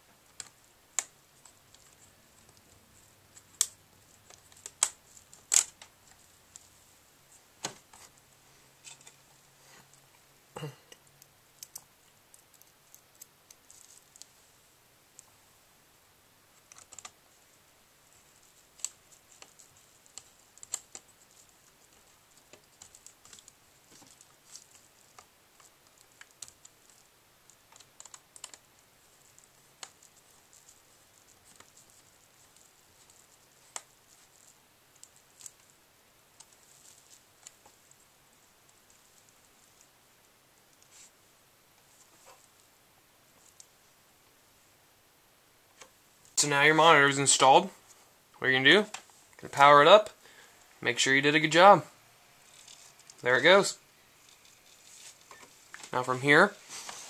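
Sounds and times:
plastic and metal parts handled: 8.8s - 9.3s.

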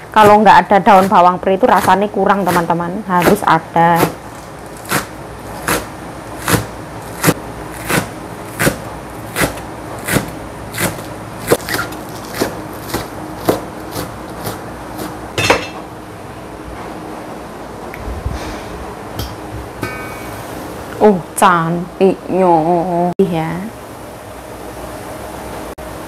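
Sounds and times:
cleaver chopping on wooden board: 4.9s - 15.1s.

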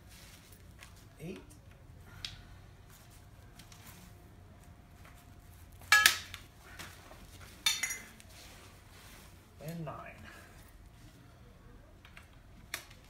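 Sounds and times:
metal tubes clinking: 5.9s - 6.4s, 7.6s - 8.2s.

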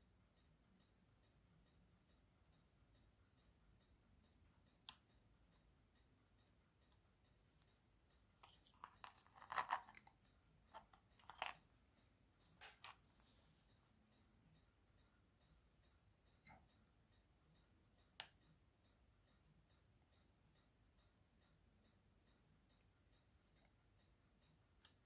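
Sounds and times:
faint high ticking: 0.0s - 25.0s
small clicks and crackles: 6.8s - 13.8s.

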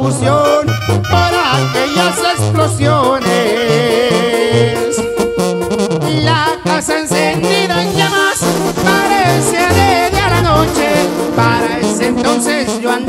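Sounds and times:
sousaphone bass: 0.0s - 13.0s
trombones and trumpets melody: 0.0s - 13.0s
drums: 7.9s - 13.0s.

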